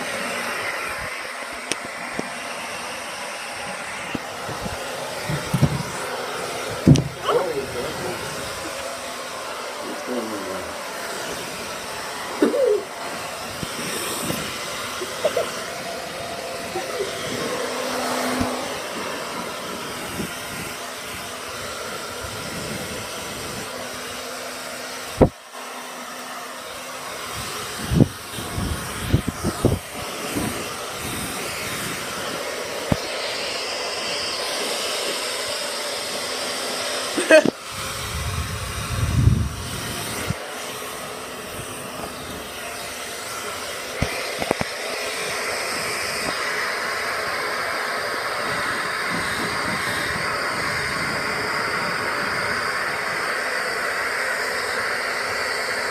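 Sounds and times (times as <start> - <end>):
hair dryer running: 0.0 - 55.9
knocks and bumps from handling: 5.3 - 5.9.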